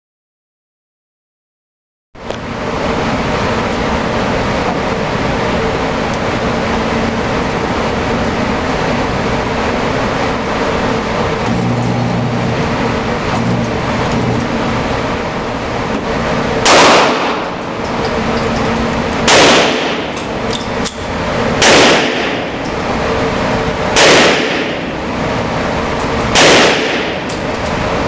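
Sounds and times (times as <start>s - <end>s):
steady background noise: 2.2s - 28.0s
pistol shots echoing: 16.6s - 17.6s, 19.2s - 20.4s, 21.6s - 22.6s, 23.9s - 24.9s, 26.3s - 27.3s.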